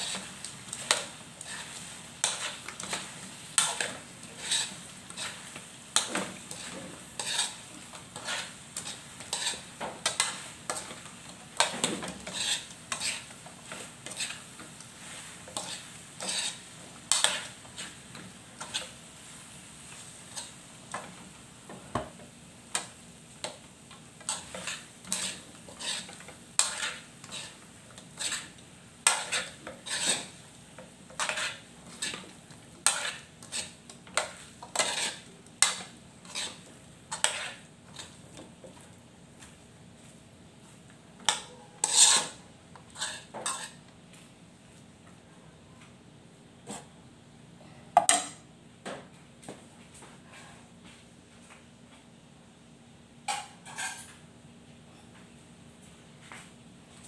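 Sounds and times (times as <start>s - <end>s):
utensil scraping metal pan: 0.0s - 3.0s, 3.6s - 5.4s, 6.0s - 7.6s, 8.2s - 10.8s, 11.6s - 13.3s, 15.5s - 18.0s, 24.3s - 27.6s, 28.2s - 30.4s, 31.1s - 38.2s, 41.3s - 43.8s.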